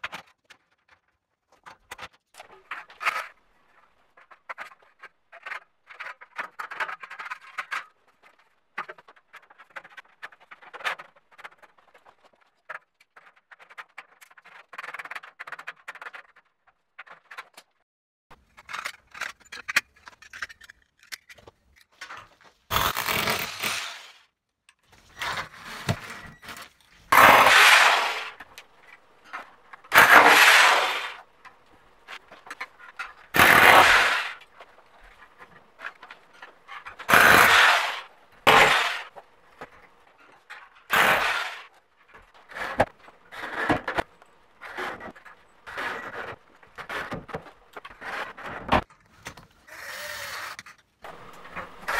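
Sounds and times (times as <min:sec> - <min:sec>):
metal studs clinking and scraping: 0:18.4 - 0:22.2
power drill driving screws: 0:22.7 - 0:24.2, 0:33.4 - 0:34.4, 0:37.1 - 0:39.1, 0:49.7 - 0:50.6.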